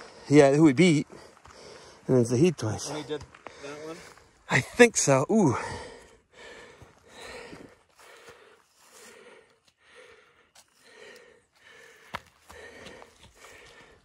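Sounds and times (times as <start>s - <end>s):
person breathing hard: 1.1s - 2.1s, 5.5s - 14.0s.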